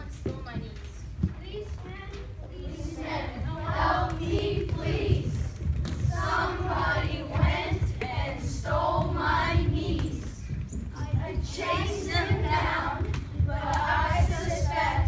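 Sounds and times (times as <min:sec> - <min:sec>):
low thumping: 0:00.2 - 0:15.0
choral singing: 0:02.7 - 0:05.5, 0:06.1 - 0:10.4, 0:11.2 - 0:15.0.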